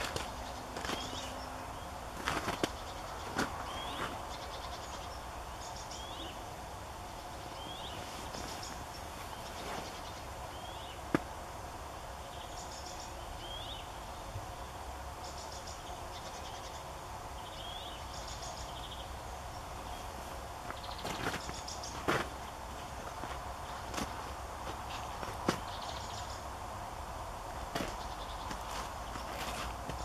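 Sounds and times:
bird chirps: 0:00.0 - 0:06.4
steady distant noise: 0:00.0 - 0:30.0.

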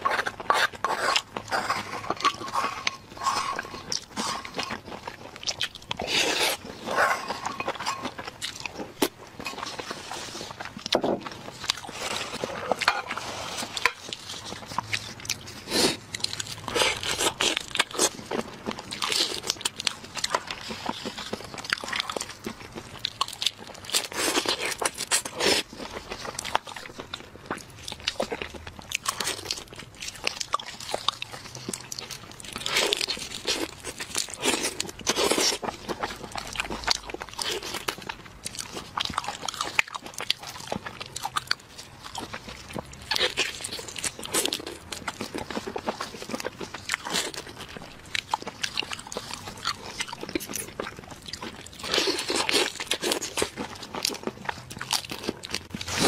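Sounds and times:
chewing: 0:00.0 - 0:56.0
crunching shrimp shells: 0:00.0 - 0:56.0.

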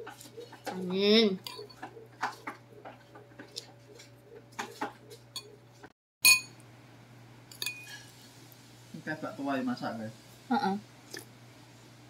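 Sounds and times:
metal spoon clinking on ceramic bowl: 0:01.4 - 0:01.8, 0:06.2 - 0:06.6, 0:07.5 - 0:08.0.

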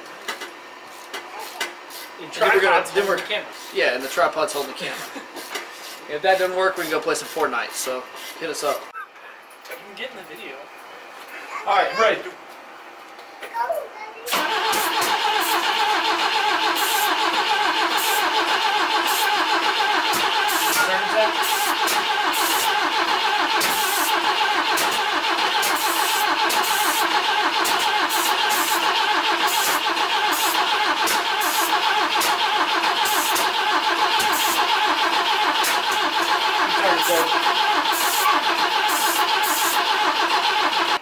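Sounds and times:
engine cranking without starting: 0:14.3 - 0:41.0
spray hissing: 0:37.9 - 0:39.8.

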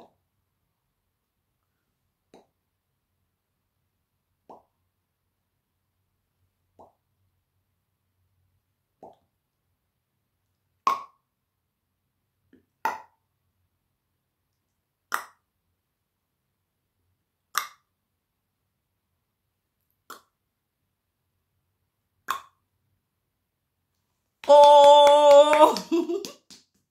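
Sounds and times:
person making mouth pops: 0:09.0 - 0:09.3, 0:10.9 - 0:11.2, 0:15.1 - 0:15.4, 0:17.5 - 0:17.9, 0:20.0 - 0:20.4, 0:22.2 - 0:22.6.

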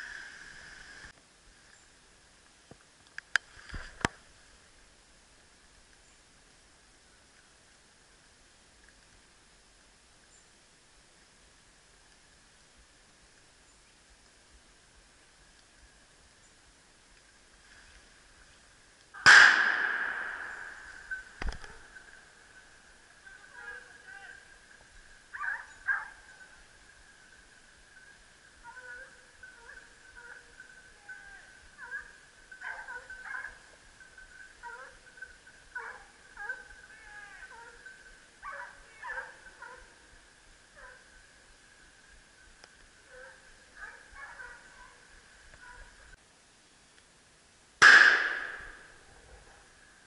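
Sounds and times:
hunting hounds baying faintly: 0:17.8 - 0:46.2, 0:48.2 - 0:50.0
rifle shot with echo: 0:19.2 - 0:22.1, 0:47.8 - 0:49.1.

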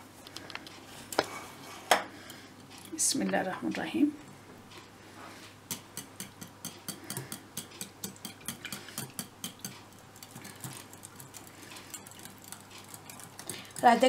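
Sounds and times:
whisk clicking against glass bowl: 0:05.7 - 0:14.0.

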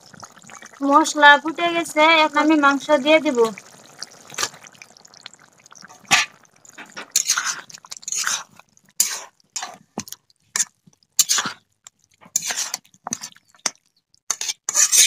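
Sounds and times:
food squelching and sizzling: 0:00.0 - 0:15.0
spatula scraping metal pan: 0:05.9 - 0:10.0, 0:10.6 - 0:15.0.

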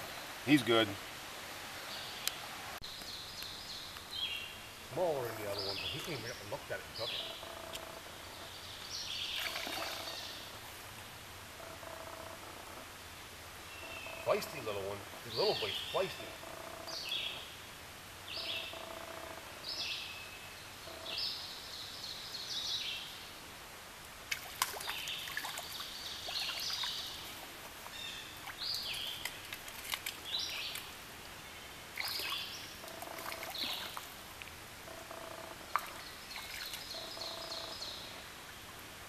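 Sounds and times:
flowing stream: 0:00.0 - 0:21.6, 0:23.2 - 0:39.0
birds chirping: 0:01.8 - 0:10.6, 0:13.6 - 0:23.2, 0:24.7 - 0:34.2, 0:34.8 - 0:38.6
light splashes: 0:24.3 - 0:31.0, 0:31.9 - 0:34.2.

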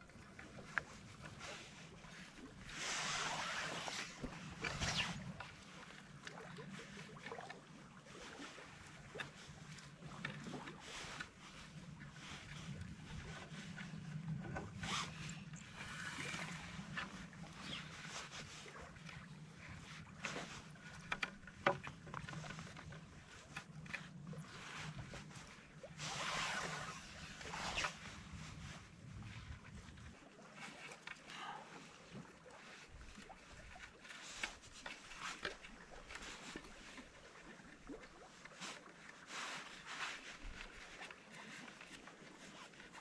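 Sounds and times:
cord rustling and scraping: 0:02.7 - 0:05.4, 0:14.4 - 0:18.2, 0:26.0 - 0:28.7
paddles knocking and clicking: 0:20.2 - 0:24.1.

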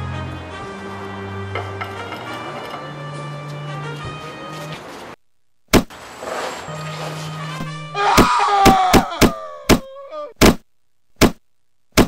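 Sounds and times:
background music: 0:00.0 - 0:05.1
punch hit sound effects: 0:05.7 - 0:05.9, 0:10.4 - 0:12.0.

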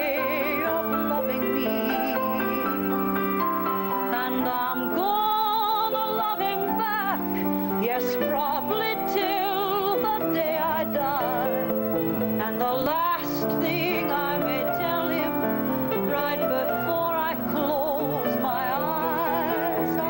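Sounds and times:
woman singing with vibrato: 0:00.0 - 0:20.0.

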